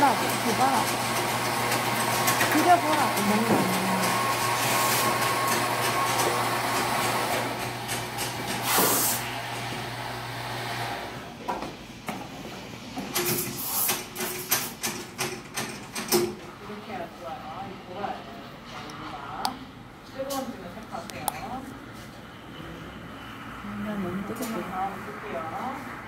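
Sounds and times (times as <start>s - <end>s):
espresso machine humming and hissing: 0.1s - 11.3s.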